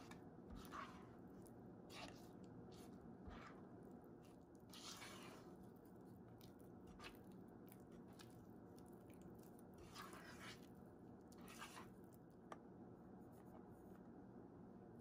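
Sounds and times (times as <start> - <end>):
spatula scraping batter in bowl: 0.0 - 1.3, 1.9 - 3.7, 4.3 - 5.7, 9.8 - 10.7, 11.4 - 12.0.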